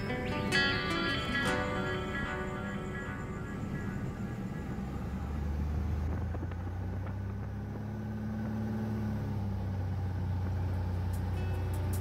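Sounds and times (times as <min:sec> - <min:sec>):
light aircraft engine drone: 0:00.0 - 0:12.0.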